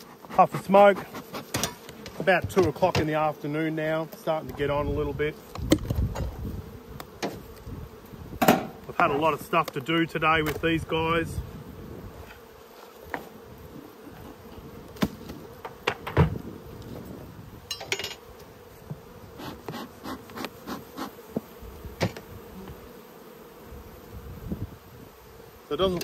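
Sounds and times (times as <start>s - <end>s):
sharp knocks and scrapes: 0.0s - 3.2s
bees buzzing: 0.0s - 26.0s.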